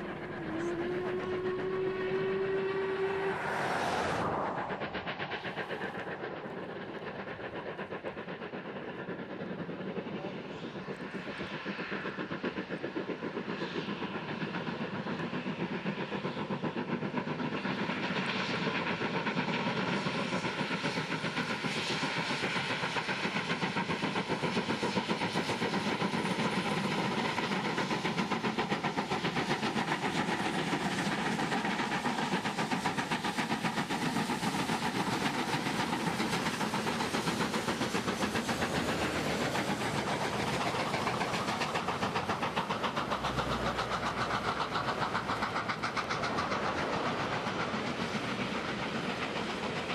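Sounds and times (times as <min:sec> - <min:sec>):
steam locomotive exhaust beats: 0:00.0 - 0:49.9.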